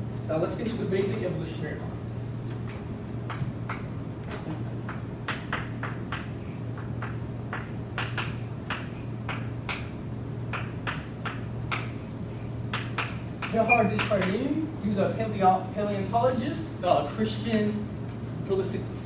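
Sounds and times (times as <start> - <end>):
steady low hum: 0.0 - 19.0
chalk tapping on a blackboard: 4.9 - 9.9.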